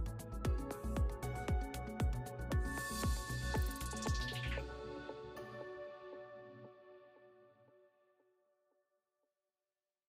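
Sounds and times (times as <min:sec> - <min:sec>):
soft background music: 0:00.0 - 0:08.0.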